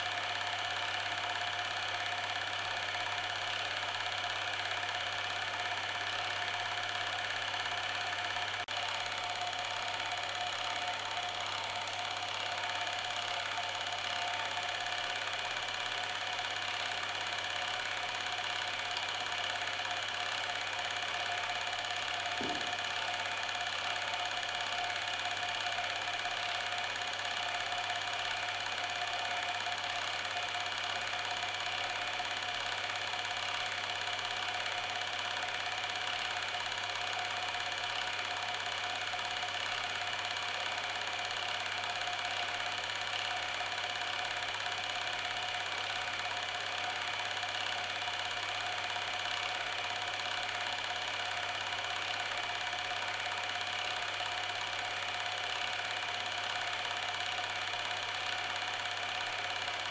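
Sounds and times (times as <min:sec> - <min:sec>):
small machine whirring: 0:00.0 - 0:59.9
low knock: 0:22.4 - 0:22.7.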